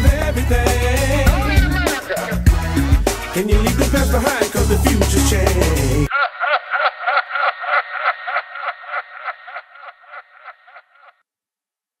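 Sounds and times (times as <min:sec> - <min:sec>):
man laughing: 0:01.0 - 0:02.9, 0:05.8 - 0:11.2.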